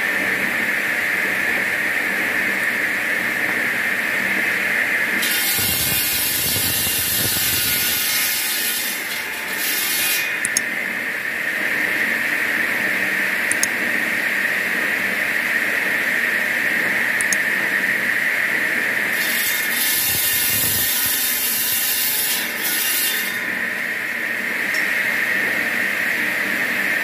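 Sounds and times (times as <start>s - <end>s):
stone saw grinding whine: 3.2s - 27.0s.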